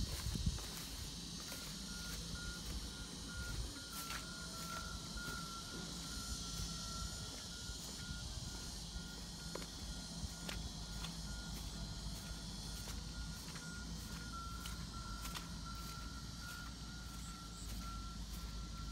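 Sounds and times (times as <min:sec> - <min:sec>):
steady high hiss: 0:00.0 - 0:18.9.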